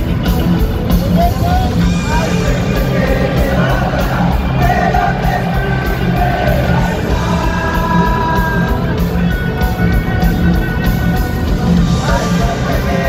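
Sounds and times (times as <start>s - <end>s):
live rock band playing: 0.0s - 13.0s
person singing: 1.3s - 9.2s, 11.8s - 13.0s.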